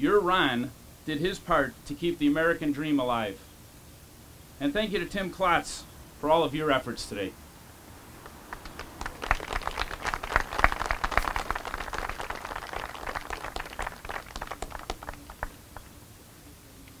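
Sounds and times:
crowd applauding: 8.2s - 15.9s.

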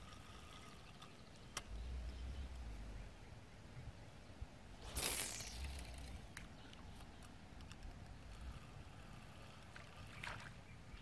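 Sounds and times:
faint low rumble: 1.6s - 9.5s.

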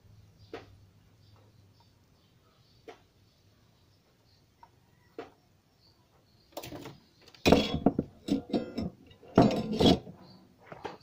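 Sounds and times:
circuit board scraping plastic: 7.8s - 11.0s.

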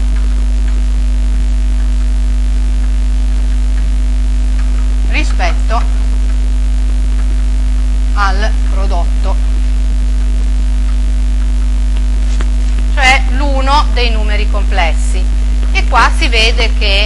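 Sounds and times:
electrical mains hum: 0.0s - 17.0s
person speaking: 4.6s - 6.3s, 8.1s - 9.7s, 11.9s - 17.0s.

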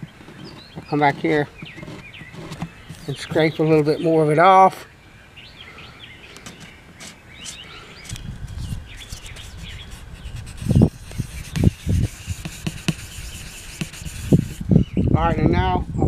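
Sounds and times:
birds chirping: 0.0s - 16.0s
blade scraper rubbing wood: 8.6s - 14.6s.

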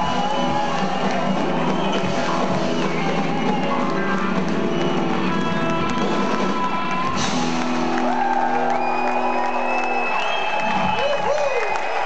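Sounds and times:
rock band with electric guitars: 0.0s - 11.0s.

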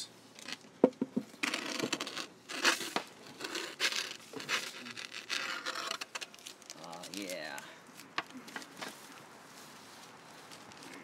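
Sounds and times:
baking paper crinkling and tearing: 1.4s - 7.7s.

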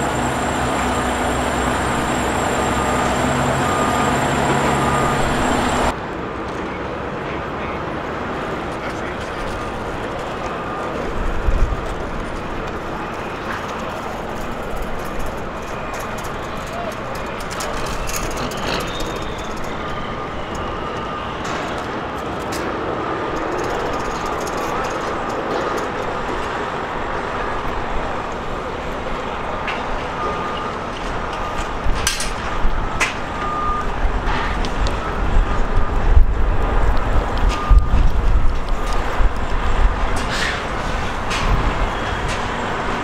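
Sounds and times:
diesel truck engines running: 0.0s - 43.0s
backup alarm beeping: 0.1s - 5.9s, 17.8s - 21.8s, 37.4s - 38.1s.

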